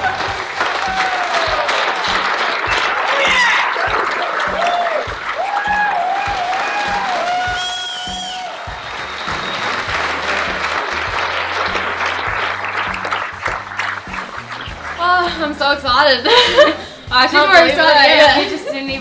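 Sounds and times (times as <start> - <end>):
whoops of cheering: 0.0 - 9.9
audience applauding: 0.0 - 15.8
background music with low beat: 0.0 - 19.0.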